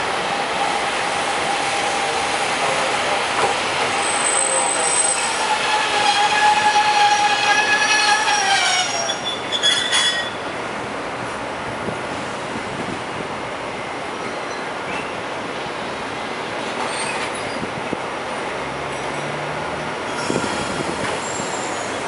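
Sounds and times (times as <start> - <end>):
tram squealing: 0.1 - 10.6, 13.8 - 16.0, 16.6 - 17.8, 18.8 - 22.0.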